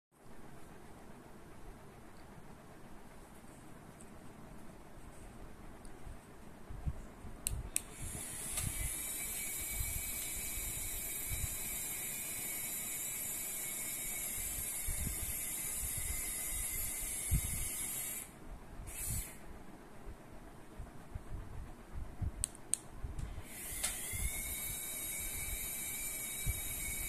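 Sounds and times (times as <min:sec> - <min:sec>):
small electric motors whirring: 0:07.9 - 0:19.4, 0:23.4 - 0:27.0.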